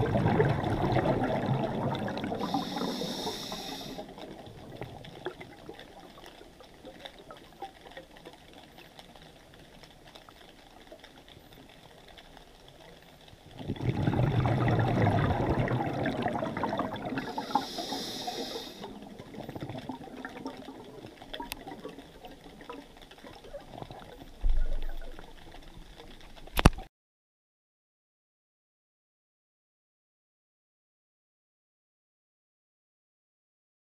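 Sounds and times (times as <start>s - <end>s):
bubbling gurgle of exhaled breath: 0.0s - 8.2s, 13.4s - 26.7s
underwater crackling hiss: 0.0s - 26.8s.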